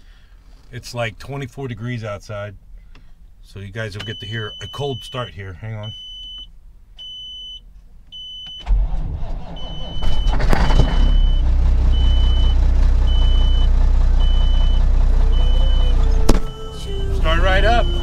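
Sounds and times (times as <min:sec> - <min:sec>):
warning beep: 0:04.0 - 0:07.6, 0:09.6 - 0:18.0
diesel engine cranking and idling: 0:08.6 - 0:18.0.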